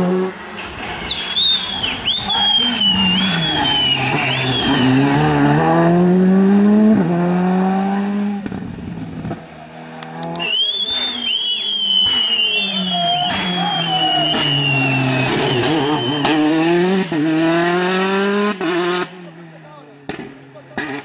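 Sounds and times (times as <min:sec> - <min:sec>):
rally car engine accelerating: 0:00.0 - 0:21.0
tyres squealing: 0:00.6 - 0:05.3, 0:10.3 - 0:16.5.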